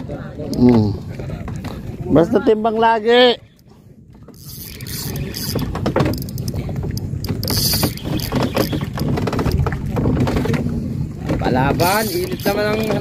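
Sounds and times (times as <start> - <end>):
water rumbling against boat hull: 0.0 - 13.0
knocks and clicks: 4.2 - 13.0.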